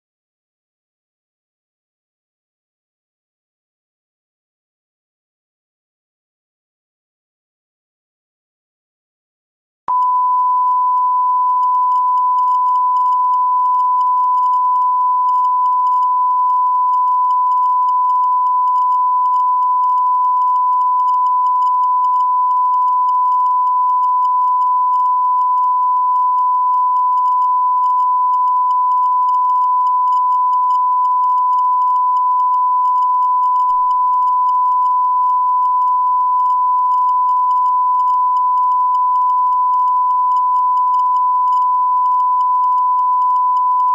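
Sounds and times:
sine-wave test tone beep: 9.9 - 43.9.

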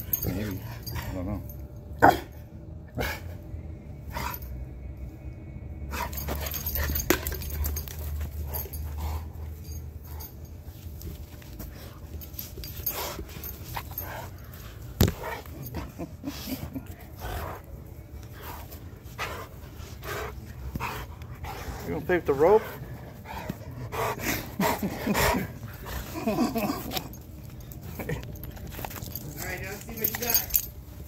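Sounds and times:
dog play noises: 0.0 - 31.0
dog panting: 5.9 - 10.6, 11.6 - 28.4.

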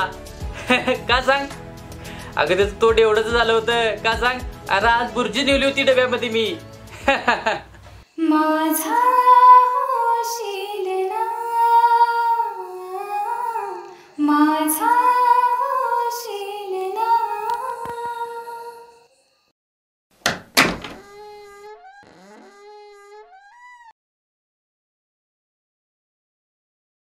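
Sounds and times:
quick thumps: 20.2 - 23.9.

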